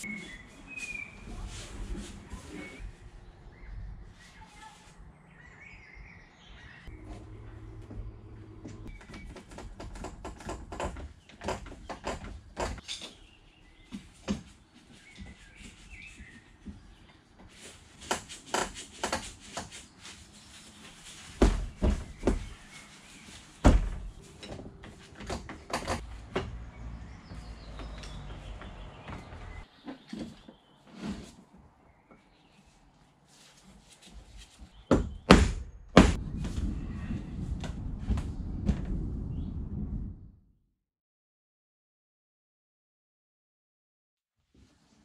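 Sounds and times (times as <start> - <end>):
heavy thumps: 23.6 - 26.6, 34.9 - 36.7.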